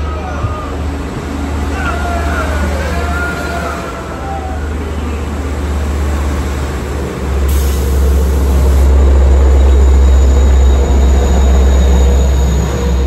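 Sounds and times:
train wheels rumbling on rails: 0.0 - 13.0
high wheel squeal: 7.5 - 13.0.

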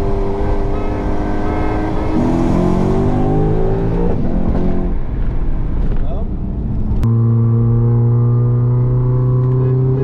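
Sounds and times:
car engine accelerating hard: 0.0 - 4.9, 7.0 - 10.0.

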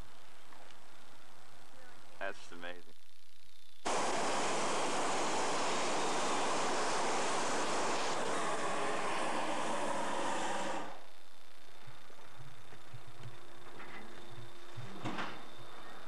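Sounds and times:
propane burner rushing blast: 3.8 - 11.1.

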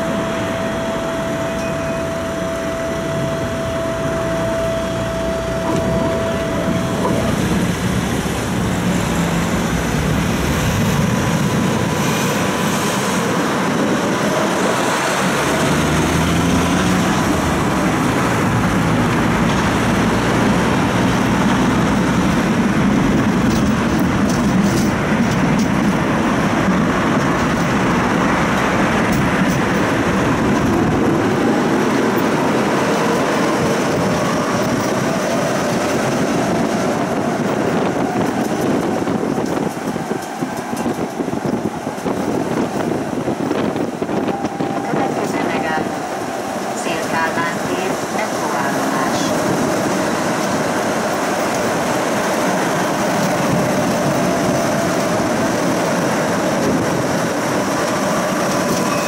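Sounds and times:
steady high tone: 0.0 - 9.7, 58.7 - 59.0
tram wheels rumbling on rails: 0.0 - 59.0.

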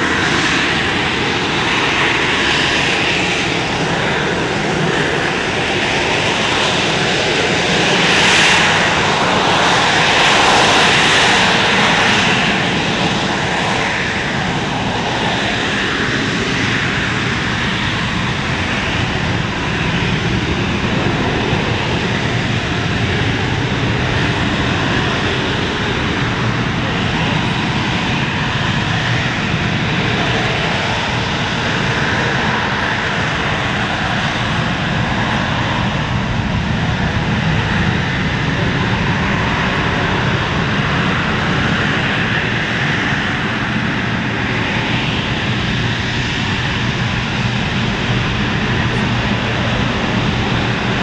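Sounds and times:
high jet whine: 0.0 - 51.0
jet hovering: 43.8 - 51.0.

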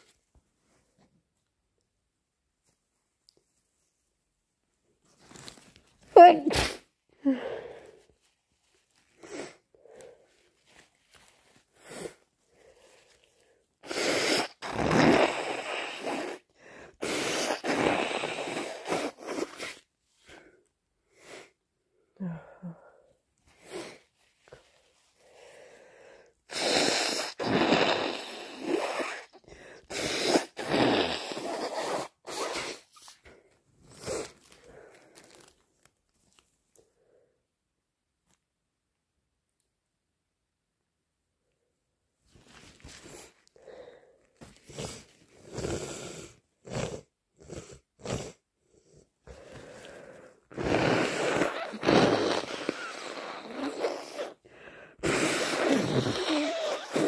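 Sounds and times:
person blowing congested nose: 6.2 - 8.1, 9.1 - 10.3, 11.2 - 21.6, 23.5 - 35.5, 42.4 - 48.4, 49.3 - 57.0
sniffs and snorts: 13.8 - 19.9, 26.5 - 35.5, 44.4 - 57.0.

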